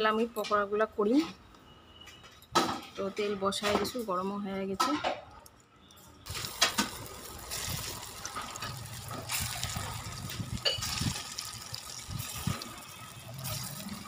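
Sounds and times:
batter sizzling in hot oil: 6.2 - 14.0.

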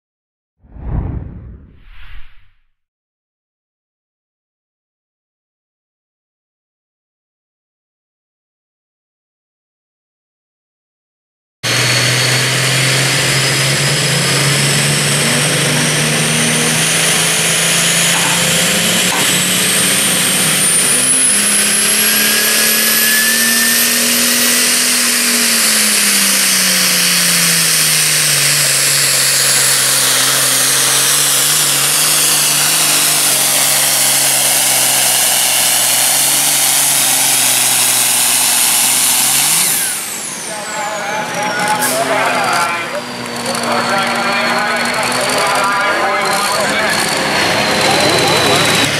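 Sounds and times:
high engine whine: 11.7 - 48.9
tractor diesel engine roaring: 11.7 - 48.9.

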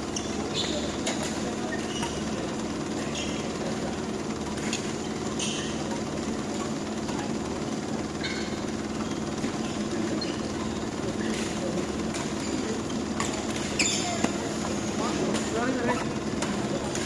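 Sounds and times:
low hum of sports hall: 0.0 - 17.0
shoes squeaking on court: 0.0 - 17.0
racket hitting shuttlecock: 15.2 - 17.0.

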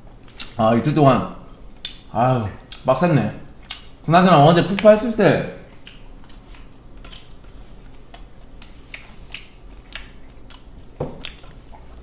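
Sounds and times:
person chewing: 0.2 - 0.6, 1.4 - 4.0, 5.6 - 12.0.

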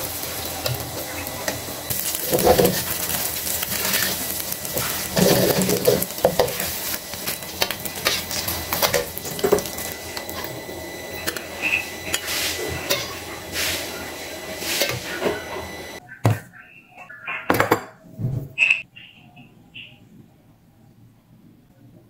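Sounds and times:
batter frying in oil: 0.0 - 16.0
metal spatula scraping wok: 0.0 - 16.0.

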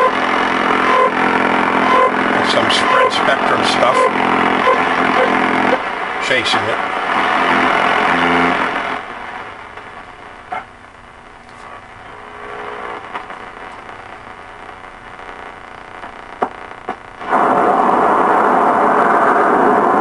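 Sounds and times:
faint radio tone: 0.0 - 20.0
loud radio hiss: 0.0 - 20.0
radio static: 0.0 - 20.0
sharp clicks: 16.0 - 17.1.

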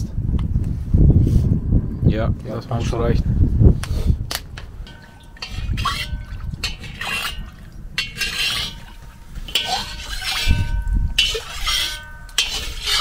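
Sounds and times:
wind buffeting microphone: 0.0 - 13.0
oil glugging and splashing: 4.6 - 13.0.

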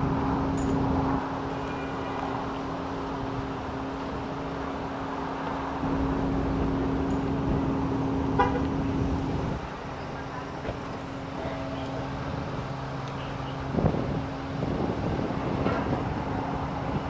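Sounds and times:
traffic noise: 0.0 - 17.0
vehicle engine idling: 0.0 - 17.0
car horn toot: 8.3 - 8.9.

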